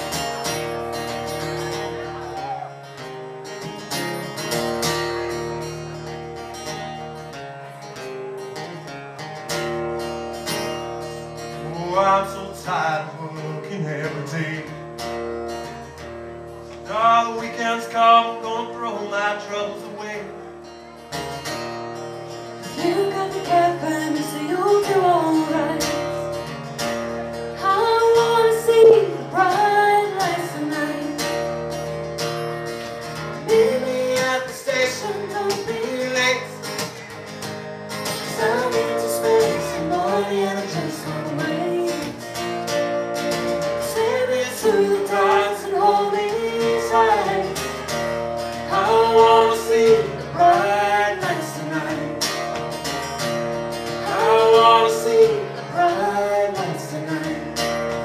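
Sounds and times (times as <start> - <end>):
guitar accompaniment: 0.0 - 58.0
woman singing: 22.7 - 26.2, 27.6 - 31.4, 38.3 - 42.2, 43.8 - 47.7.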